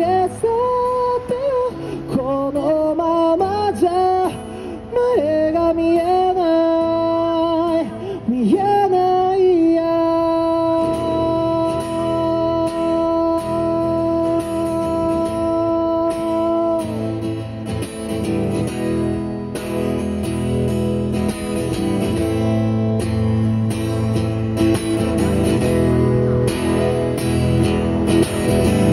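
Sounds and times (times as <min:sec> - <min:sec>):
man singing: 0:00.0 - 0:17.4
acoustic guitar strumming: 0:00.0 - 0:28.9.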